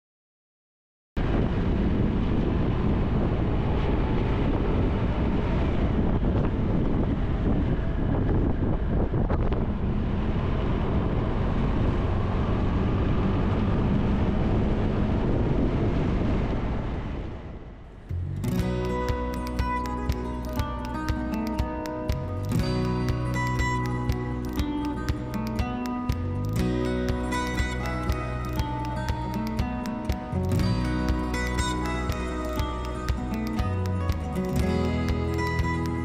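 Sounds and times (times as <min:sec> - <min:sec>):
wind rushing on microphone: 0:01.2 - 0:36.0
motorcycle engine running: 0:18.5 - 0:36.0.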